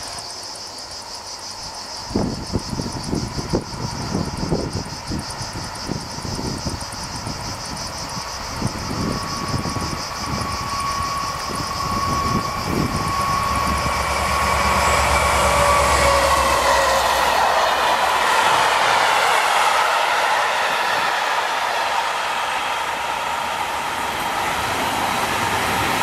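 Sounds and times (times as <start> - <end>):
cicadas buzzing: 0.0 - 26.0
engine whine: 0.0 - 26.0
locomotive engine passing: 2.7 - 26.0.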